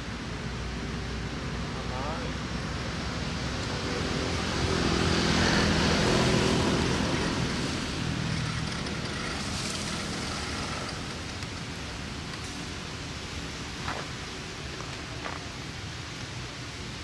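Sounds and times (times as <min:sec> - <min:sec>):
toy truck electric motor humming: 0:07.1 - 0:12.0.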